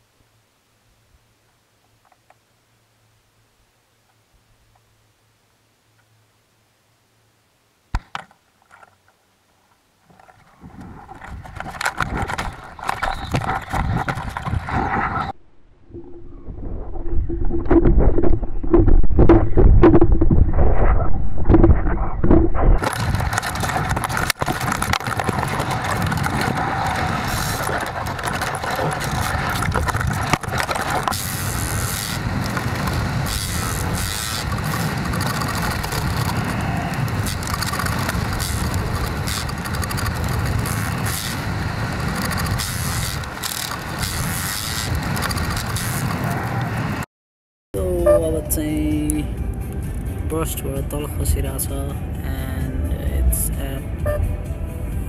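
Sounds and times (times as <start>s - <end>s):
rushing wind noise: 10.5s - 47.0s
wind buffeting microphone: 10.6s - 47.0s.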